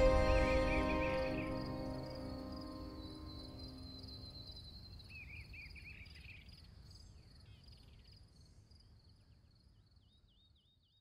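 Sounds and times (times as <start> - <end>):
crickets chirping: 0.0 - 7.6.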